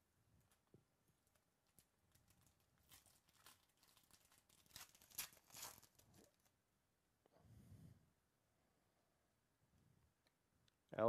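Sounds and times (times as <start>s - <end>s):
foil wrapper crinkling: 1.2s - 6.6s.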